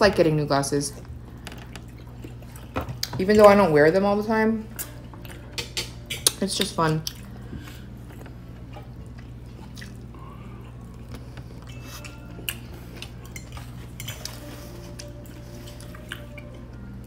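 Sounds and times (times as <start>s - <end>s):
steady low hum: 0.0s - 17.0s
person chewing food: 1.0s - 3.1s, 4.7s - 6.4s, 7.0s - 17.0s
fork clicking against plate: 5.5s - 6.8s.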